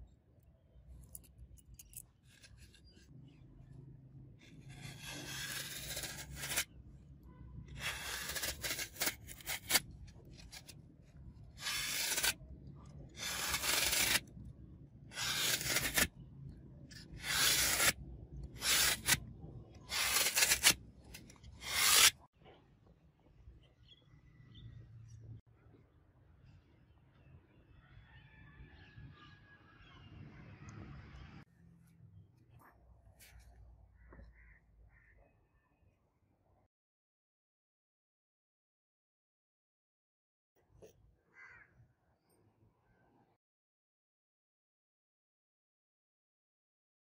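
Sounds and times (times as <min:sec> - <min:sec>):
knife blade slicing foam: 0:04.6 - 0:06.7, 0:07.7 - 0:10.8, 0:11.6 - 0:12.4, 0:13.2 - 0:14.3, 0:15.1 - 0:16.1, 0:16.9 - 0:22.2.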